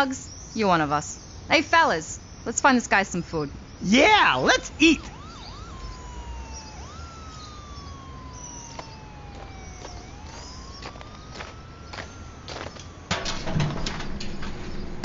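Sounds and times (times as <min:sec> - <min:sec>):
siren wailing: 0:03.6 - 0:14.1.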